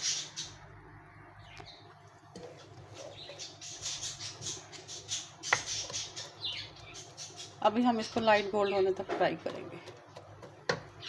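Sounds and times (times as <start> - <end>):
wooden spatula scraping pan: 2.3 - 6.4
spatula knocking pan: 10.1 - 11.0.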